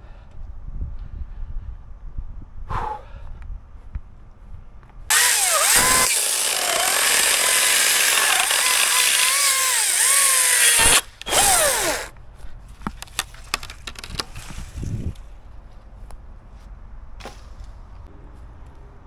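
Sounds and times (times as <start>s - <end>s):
chainsaw cutting wood: 5.1s - 12.1s.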